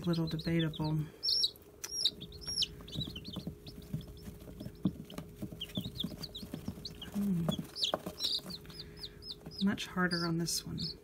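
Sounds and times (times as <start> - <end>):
chicks peeping: 0.0 - 11.0
faint steady hum: 0.0 - 11.0.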